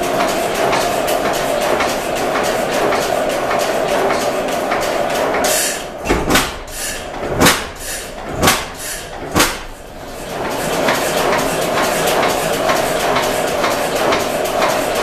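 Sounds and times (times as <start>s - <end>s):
heavy engine beats: 0.0s - 9.9s
oilfield engine clattering: 0.0s - 15.0s.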